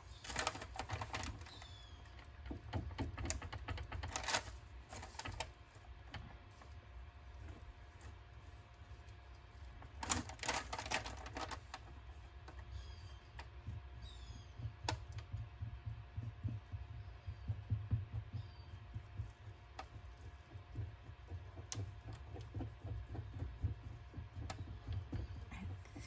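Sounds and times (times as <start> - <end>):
small clicks and taps: 0.2 - 26.0
faint squeaks: 12.5 - 14.8.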